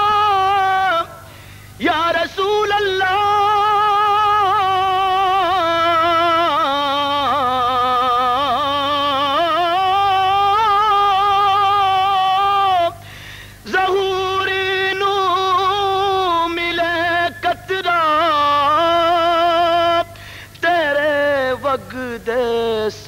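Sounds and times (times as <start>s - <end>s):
man singing with vibrato: 0.0s - 23.0s.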